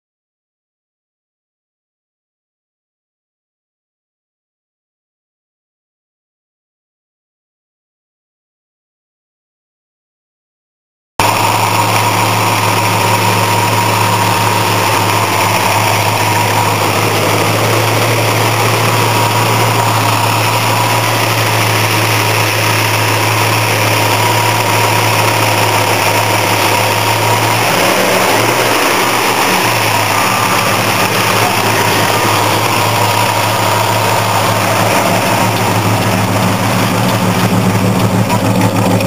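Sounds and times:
car engine idling: 11.2 - 39.0.

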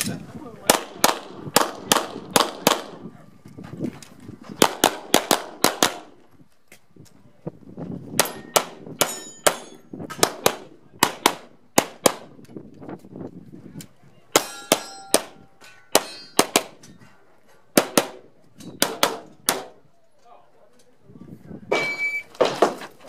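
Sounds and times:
pistol shots: 0.7 - 3.0, 4.6 - 6.2, 14.4 - 16.8, 18.8 - 19.8
metallic ring of steel targets: 8.2 - 9.9, 14.4 - 17.0.

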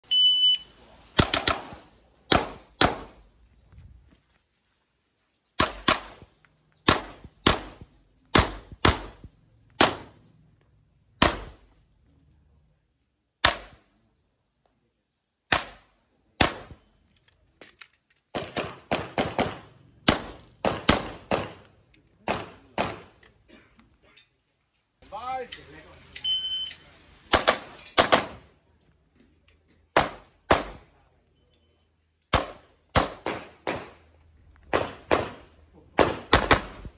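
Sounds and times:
shot timer beep: 26.2 - 26.8.

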